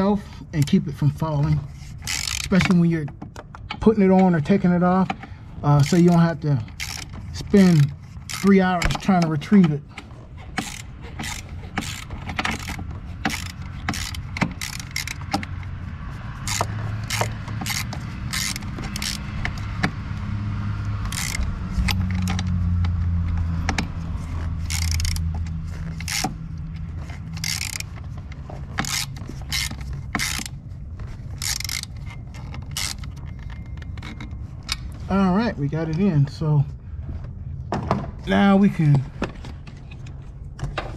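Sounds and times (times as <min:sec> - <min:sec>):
hand ratchet clicking: 0:01.7 - 0:04.4, 0:05.7 - 0:20.0, 0:20.8 - 0:35.0.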